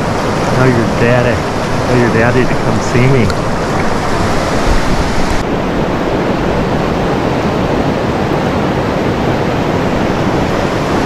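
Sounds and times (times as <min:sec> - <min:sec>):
whitewater rapids over rocks: 0:00.0 - 0:05.4.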